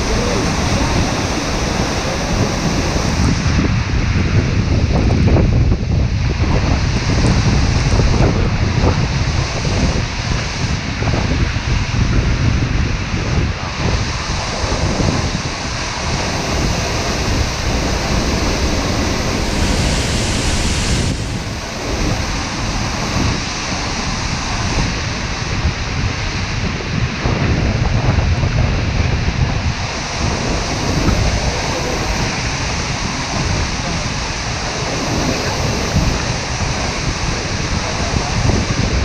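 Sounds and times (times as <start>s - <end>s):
waterfall crashing: 0.0s - 3.9s, 13.6s - 26.6s, 29.6s - 39.0s
wind buffeting microphone: 0.0s - 39.0s.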